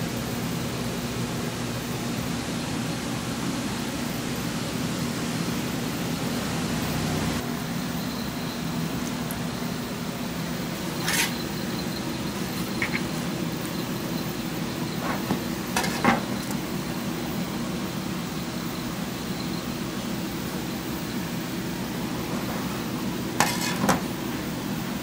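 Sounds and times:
kitchen hum and hiss: 0:00.0 - 0:25.0.

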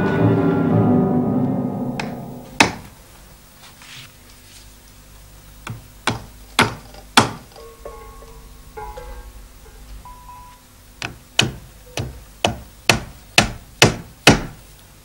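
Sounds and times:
hammer striking nails into wood: 0:02.0 - 0:02.9, 0:05.6 - 0:07.7, 0:11.0 - 0:14.6.

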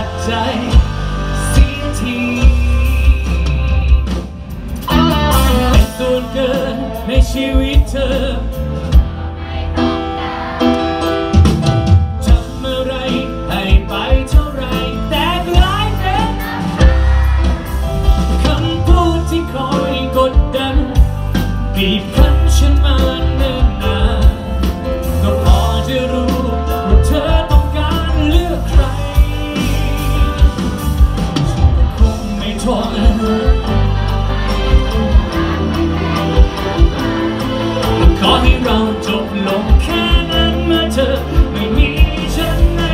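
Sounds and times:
man singing: 0:00.0 - 0:09.1, 0:12.1 - 0:42.9
electric guitar: 0:00.0 - 0:09.6
drum kit steady beat: 0:00.0 - 0:09.9, 0:11.0 - 0:42.9
bass guitar: 0:00.0 - 0:42.9
live pop-rock band: 0:00.0 - 0:42.9.

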